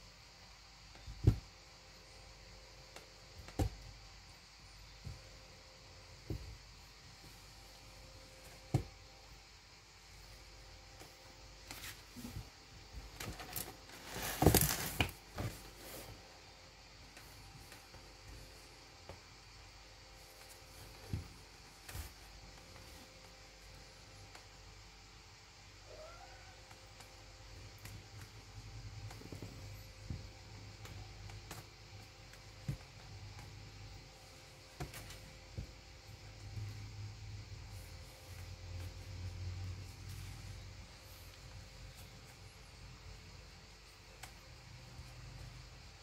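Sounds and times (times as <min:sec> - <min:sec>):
steady low hum: 0:00.0 - 0:46.0
kittens thumping and rustling: 0:00.9 - 0:01.6, 0:10.9 - 0:16.3, 0:20.2 - 0:24.4, 0:26.6 - 0:37.0
kittens scuffling on cardboard: 0:11.0 - 0:16.3.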